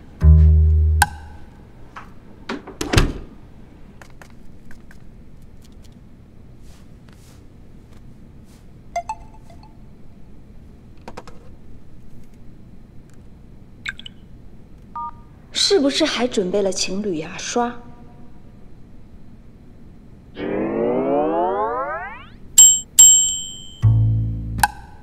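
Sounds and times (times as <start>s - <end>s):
plucked double bass note: 0.0s - 1.3s, 23.8s - 24.6s
short chime-like ring: 22.6s - 23.8s.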